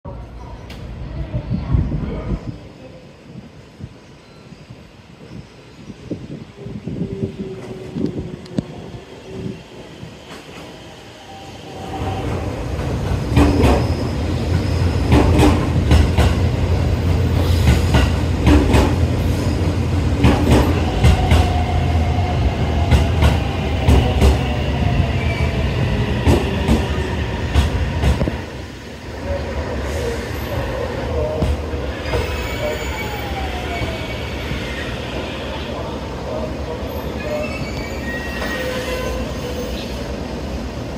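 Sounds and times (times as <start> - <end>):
train whine: 6.2 - 40.9
train wheel rumble: 11.7 - 32.8
wheel squeal: 37.2 - 39.9.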